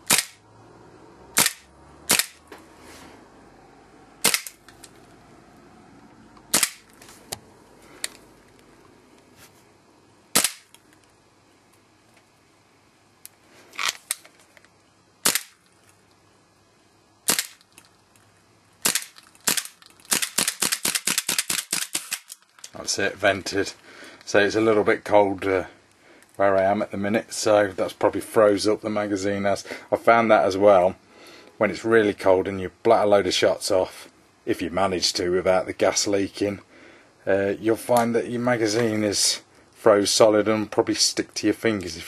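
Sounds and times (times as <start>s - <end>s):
airsoft pistol shots: 0.0s - 0.4s, 1.4s - 2.4s, 4.2s - 4.6s, 6.5s - 6.8s, 10.3s - 10.7s, 15.2s - 15.6s, 17.3s - 17.6s, 18.8s - 22.2s
fast clicks of empty pistol: 0.0s - 0.4s, 1.4s - 2.4s, 4.2s - 4.6s, 6.5s - 6.9s, 10.4s - 10.8s, 15.2s - 15.6s, 17.3s - 17.9s, 18.8s - 22.7s.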